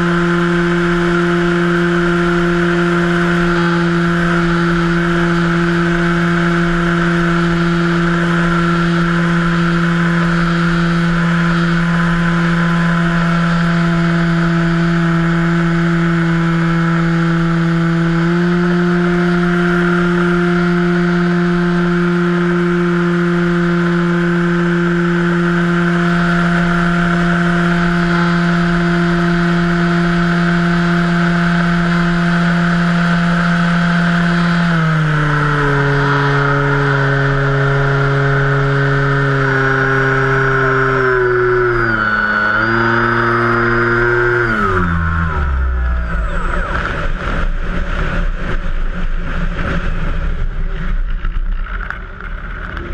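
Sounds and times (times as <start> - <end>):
electric motor and propeller whine: 0.0 - 52.9.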